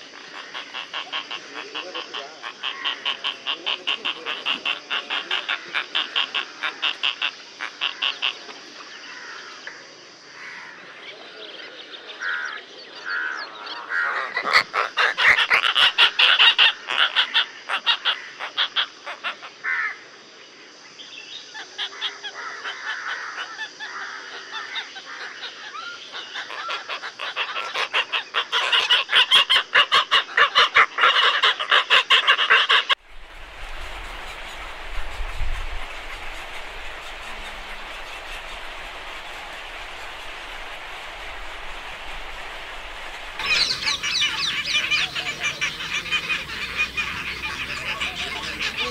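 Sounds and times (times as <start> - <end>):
storks calling in rattling pulses: 0.1 - 8.5, 26.4 - 48.9
steady hiss: 32.9 - 48.9.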